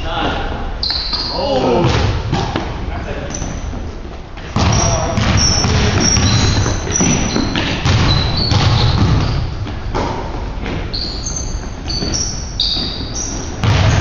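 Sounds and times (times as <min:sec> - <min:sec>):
sneakers squeaking: 0:00.0 - 0:14.0
basketball bouncing: 0:04.5 - 0:14.0.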